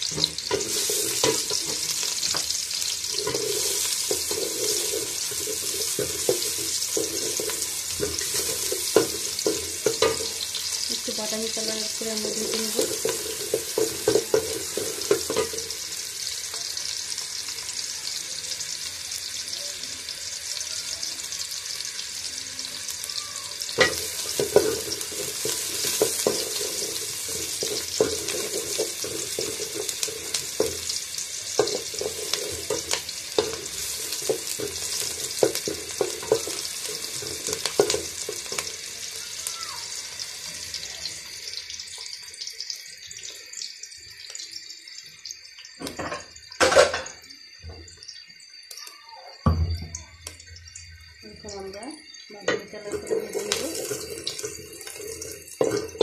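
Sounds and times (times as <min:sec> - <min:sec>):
onions sizzling in hot oil: 0:00.0 - 0:56.0
wooden spatula scraping a pot: 0:00.4 - 0:02.1, 0:03.0 - 0:10.6, 0:23.9 - 0:31.0, 0:31.6 - 0:38.6.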